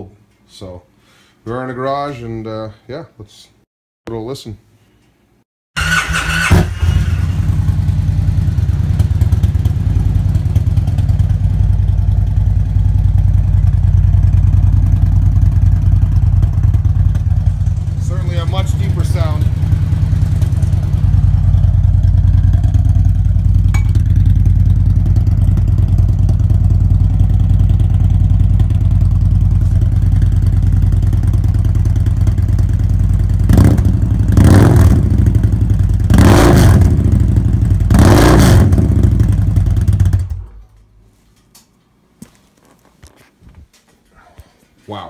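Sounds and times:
motorcycle engine idling and revving: 5.8 - 40.6.

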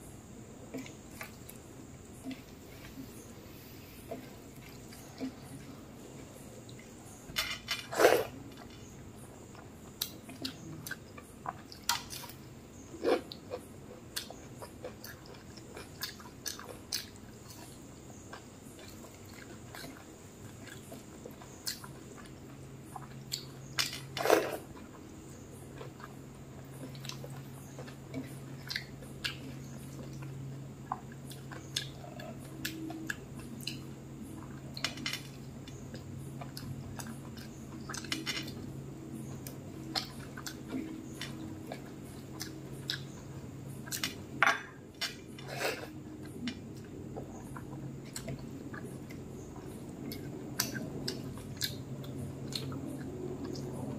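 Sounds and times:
chewing and mouth smacks: 13.0 - 44.2, 44.9 - 53.9.

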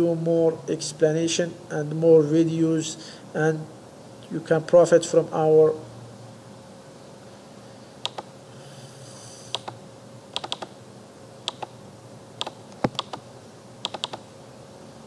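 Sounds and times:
faint steady hum: 0.0 - 15.0
computer mouse clicks: 8.0 - 8.3, 9.5 - 9.8, 10.4 - 10.7, 11.5 - 11.8, 12.4 - 13.2, 13.8 - 14.3.

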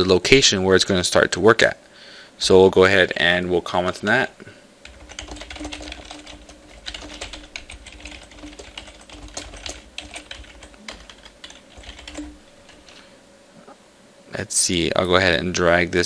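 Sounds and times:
typing on keyboard: 4.8 - 13.0.

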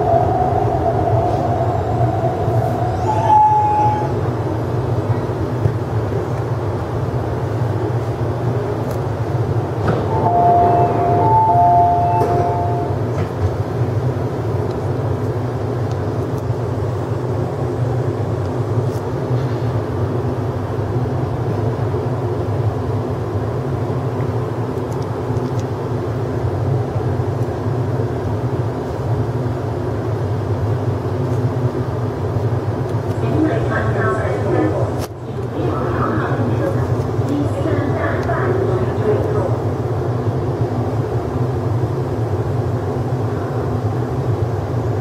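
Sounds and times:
train low hum: 0.0 - 45.0
two-tone electronic chime: 10.1 - 12.9.

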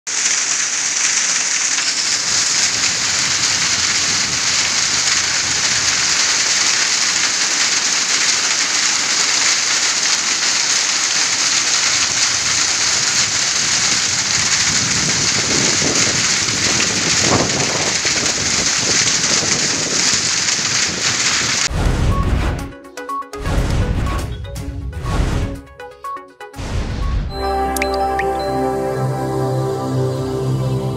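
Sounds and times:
heavy rain and hail: 0.1 - 22.3
short music sting: 26.6 - 30.9.

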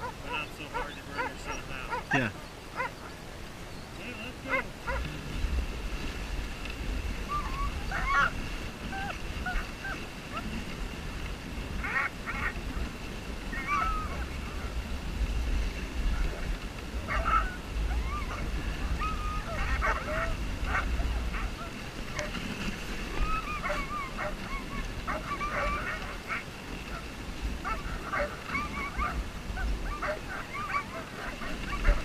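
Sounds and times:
dogs yipping and whining: 0.0 - 3.1, 4.5 - 5.0, 7.2 - 10.5, 13.5 - 14.7, 17.1 - 22.4, 23.1 - 32.0.

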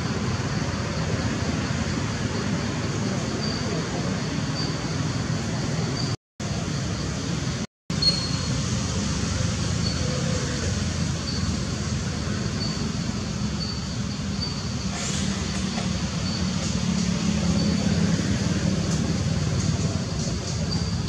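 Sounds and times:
faint short high chirps: 8.0 - 8.6.

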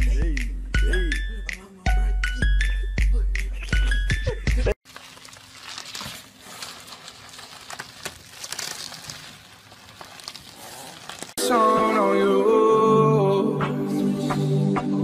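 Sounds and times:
bubble wrap crinkling: 4.8 - 11.4.

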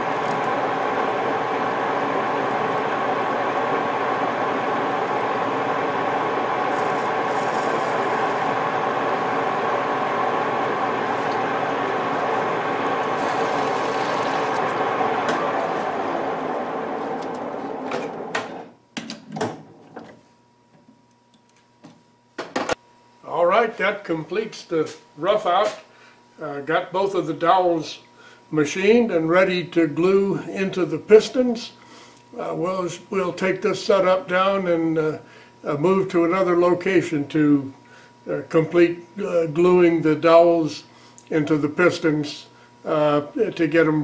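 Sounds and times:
metal lathe running: 0.0 - 18.6.

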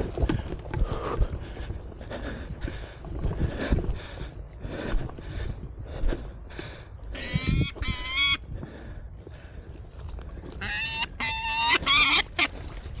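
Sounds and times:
bird giving harsh calls: 10.6 - 12.5.

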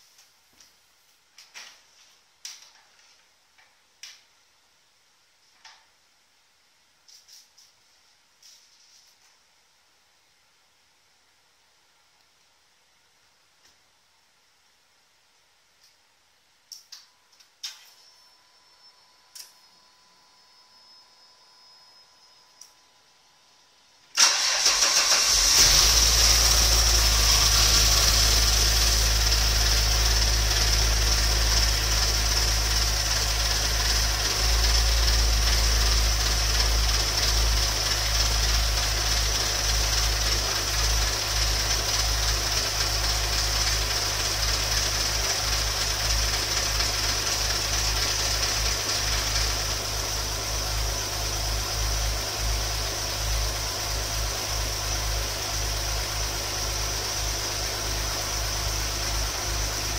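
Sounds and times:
steady high hiss: 0.0 - 59.9
car engine starting and idling: 24.1 - 59.9.

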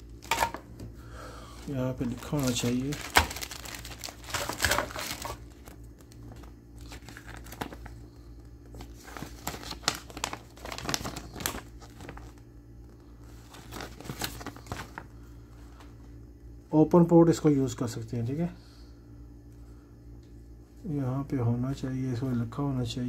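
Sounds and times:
plastic bag crinkling: 1.6 - 12.4, 13.3 - 15.1
paper leaflet rustling: 1.6 - 15.1.

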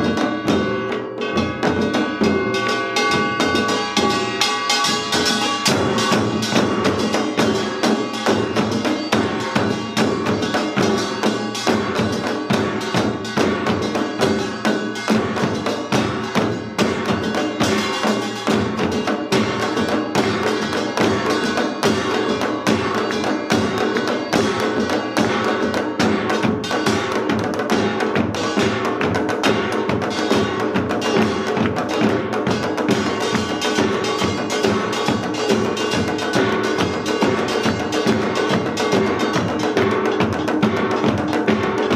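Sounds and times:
drum strokes: 0.0 - 41.9
small brass gong clanging: 0.1 - 25.5.

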